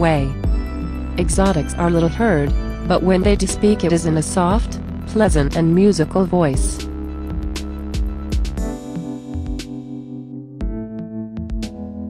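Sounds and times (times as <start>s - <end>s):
held synthesizer chords: 0.0s - 12.0s
sparse drum beat: 5.3s - 5.6s, 6.6s - 9.8s.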